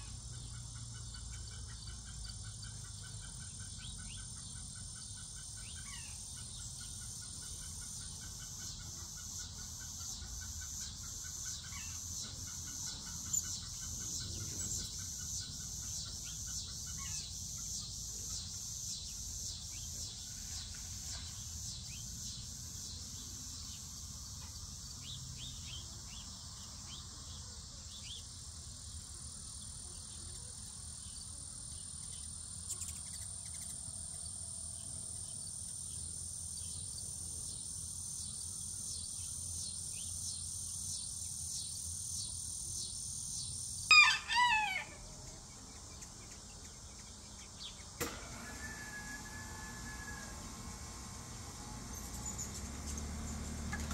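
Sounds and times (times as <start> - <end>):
crickets and insects trilling: 5.2 - 53.9.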